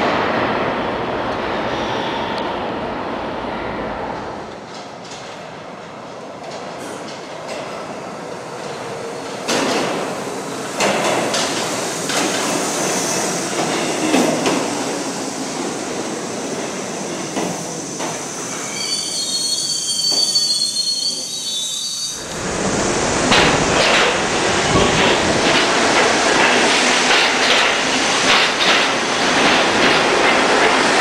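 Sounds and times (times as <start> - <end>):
subway train rumbling: 0.0 - 31.0
high wheel squeal: 18.4 - 22.4
wheels clacking over rail joints: 22.2 - 31.0.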